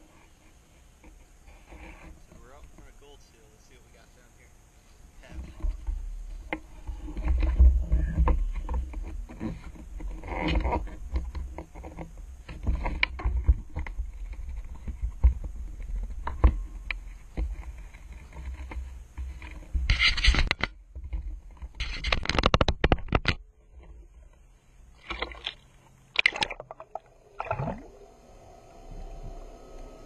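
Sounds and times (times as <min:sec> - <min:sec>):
water sloshing and lapping: 0:23.6 - 0:28.1
water splashing: 0:24.9 - 0:28.2.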